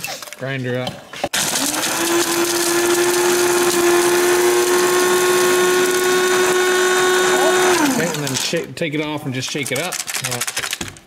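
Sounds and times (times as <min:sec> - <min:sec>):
charcoal rattling in grinder: 0:01.3 - 0:10.9
blade grinder motor whine: 0:01.4 - 0:08.4.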